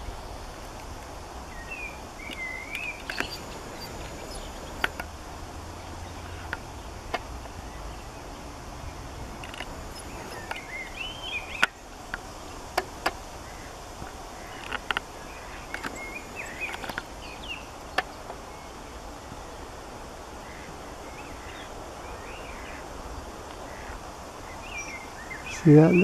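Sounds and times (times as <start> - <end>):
small birds chirping: 0.8 - 5.1, 7.6 - 12.8, 14.3 - 19.6, 20.4 - 26.0
sharp clicks: 2.3 - 5.1.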